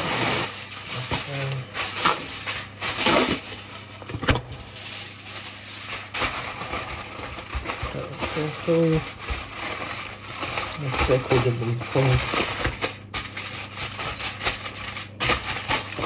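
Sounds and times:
aluminium foil crinkling: 0.0s - 16.0s.

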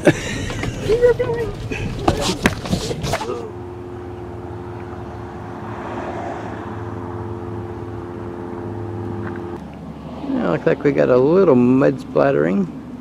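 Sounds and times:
car engine idling: 0.0s - 5.8s.

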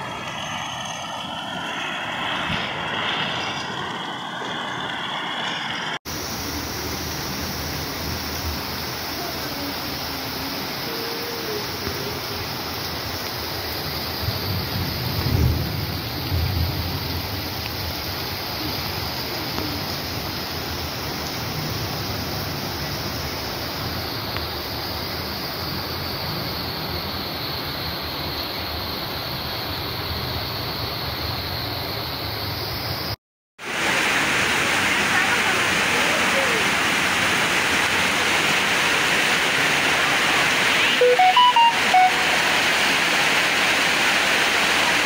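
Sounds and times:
floodwater running along road: 0.0s - 33.0s, 33.6s - 45.0s
pitched notes: 40.9s - 42.6s.

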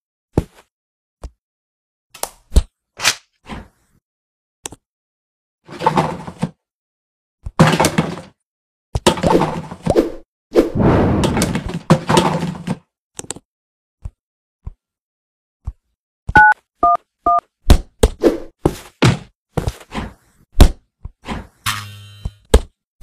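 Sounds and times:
phone keypad touch tones: 16.4s - 17.4s.

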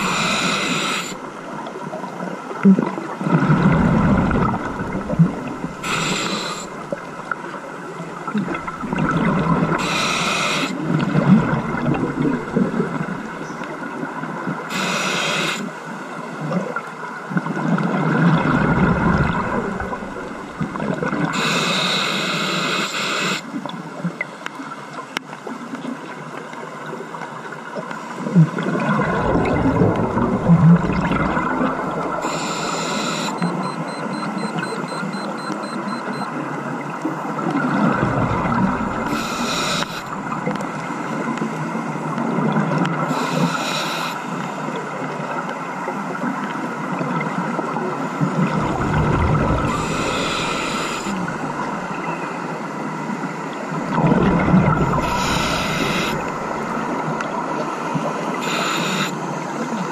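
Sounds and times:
regulator hissing breaths: 0.0s - 1.2s, 5.8s - 7.0s, 9.8s - 10.8s, 14.7s - 15.7s, 21.4s - 23.4s, 32.2s - 33.4s, 39.0s - 40.2s, 43.1s - 44.3s, 49.7s - 51.5s, 55.0s - 56.3s, 58.4s - 59.2s
exhaled air bubbling: 0.0s - 13.7s, 17.5s - 21.5s, 28.4s - 33.2s, 37.4s - 41.4s, 47.2s - 52.3s, 53.6s - 58.8s
steady underwater rush: 0.0s - 14.0s, 17.4s - 22.5s, 28.0s - 34.5s, 36.8s - 45.3s, 46.6s - 59.7s.

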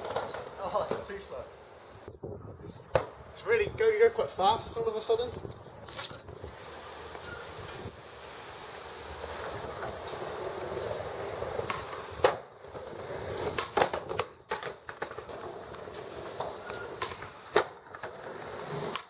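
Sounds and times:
skateboard wooden clacks: 0.0s - 1.3s, 2.9s - 3.2s, 11.5s - 19.0s
skateboard wheels rolling on stone: 0.0s - 2.1s, 2.8s - 19.0s.

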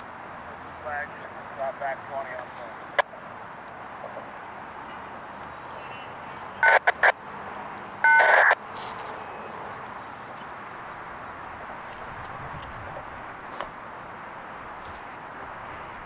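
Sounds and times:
outdoor background hiss: 0.0s - 16.0s
two-way radio crackles: 1.0s - 3.1s, 3.7s - 8.6s
radio two-note tone: 5.9s - 7.2s, 8.0s - 8.6s.

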